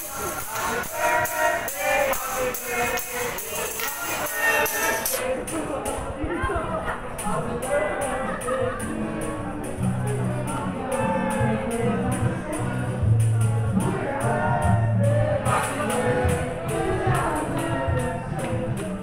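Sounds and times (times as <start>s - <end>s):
tambourine shaken: 0.0s - 5.2s
people singing a birthday song: 0.0s - 19.0s.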